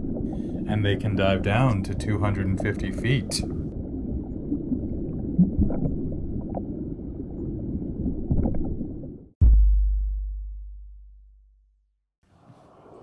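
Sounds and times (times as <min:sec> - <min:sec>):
underwater rumbling and bubbling: 0:00.0 - 0:09.4
deep boom: 0:09.4 - 0:11.6.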